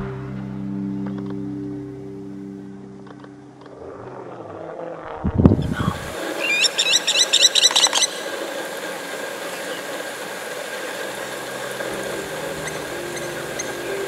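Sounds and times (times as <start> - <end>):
steady hum: 0.0 - 14.0
high squealing animal calls: 3.8 - 8.8, 9.4 - 14.0.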